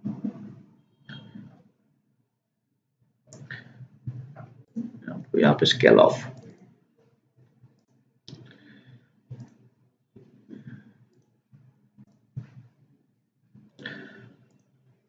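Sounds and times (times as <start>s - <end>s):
computer mouse clicks: 6.3s - 6.6s, 9.3s - 9.6s.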